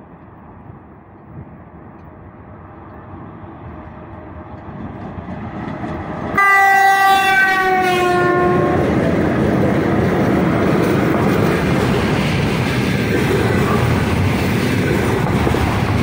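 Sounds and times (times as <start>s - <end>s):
locomotive horn blast: 6.4s - 8.9s.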